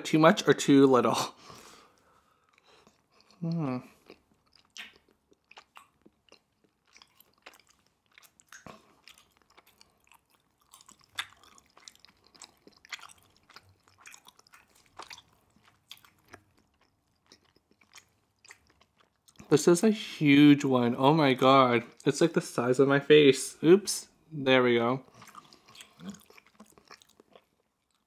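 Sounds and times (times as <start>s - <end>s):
person chewing food: 1.5s - 19.5s, 25.1s - 28.0s
mouth clicks and smacks: 2.5s - 19.5s, 25.1s - 28.0s.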